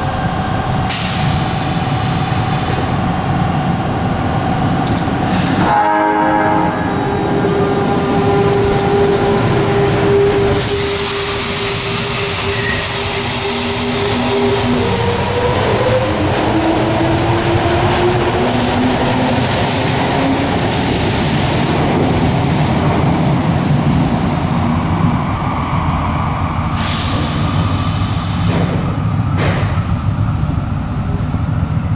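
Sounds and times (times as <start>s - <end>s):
train cars rumbling: 0.0s - 31.9s
train motor whine: 4.8s - 16.5s.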